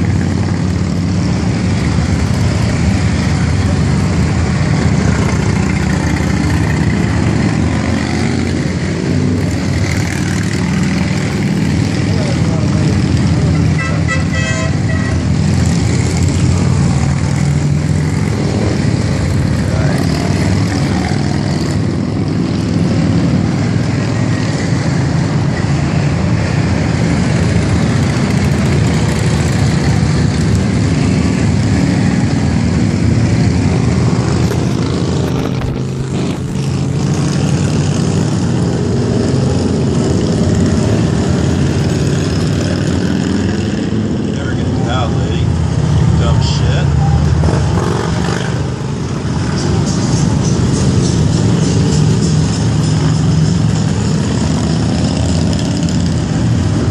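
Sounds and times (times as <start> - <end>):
cars passing: 0.0 - 56.9
motorcycles riding past: 0.0 - 56.9.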